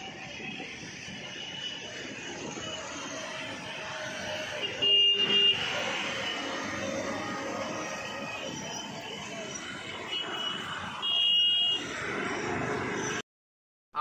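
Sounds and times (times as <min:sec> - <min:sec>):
road traffic: 0:00.0 - 0:13.3
vehicle horn: 0:04.6 - 0:05.8, 0:10.1 - 0:11.8.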